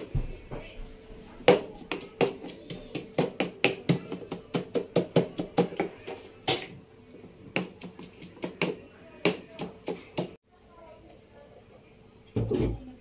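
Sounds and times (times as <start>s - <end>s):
stone pestle pounding in mortar: 1.5s - 6.0s, 7.6s - 10.4s.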